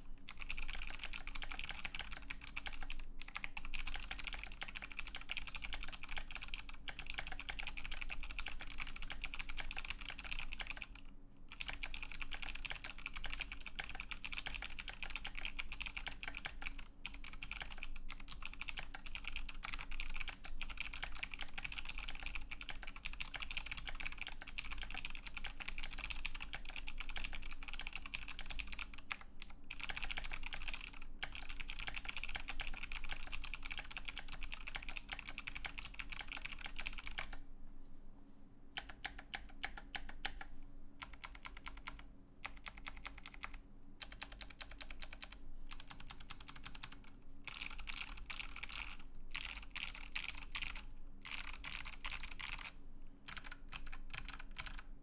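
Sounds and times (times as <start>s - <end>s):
mechanical keyboard typing: 0.0s - 37.4s, 38.8s - 54.9s.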